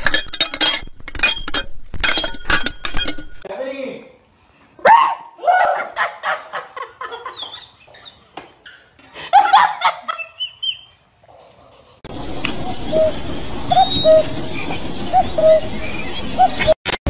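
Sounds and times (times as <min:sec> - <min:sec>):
man laughing: 0:05.6 - 0:07.6, 0:09.0 - 0:10.4.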